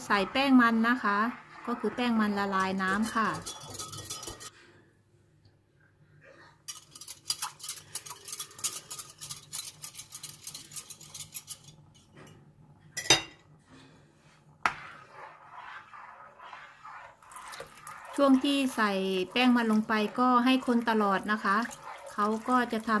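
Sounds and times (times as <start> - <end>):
metal spoon clinking against a dish: 3.4 - 4.5.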